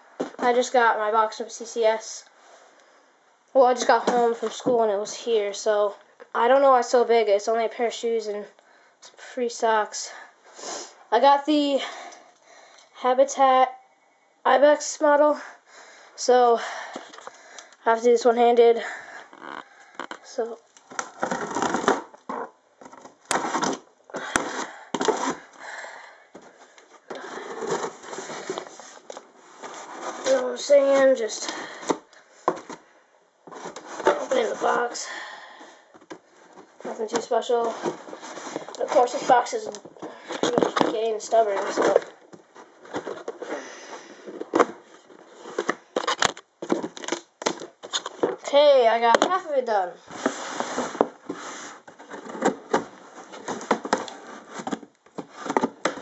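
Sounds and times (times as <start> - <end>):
cardboard scraping and rustling: 20.9 - 25.5, 26.4 - 30.7, 33.5 - 34.9, 36.0 - 48.4, 50.1 - 56.0
cardboard scraping and tearing: 20.9 - 25.5, 27.1 - 30.5.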